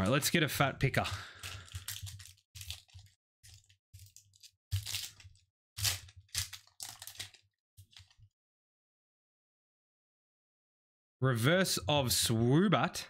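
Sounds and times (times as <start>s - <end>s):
foil wrapper crinkling: 1.2s - 8.2s.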